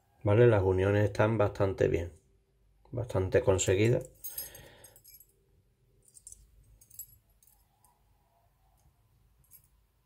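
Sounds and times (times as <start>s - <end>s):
metal wire puzzle clinking: 3.9s - 5.4s, 6.0s - 8.0s.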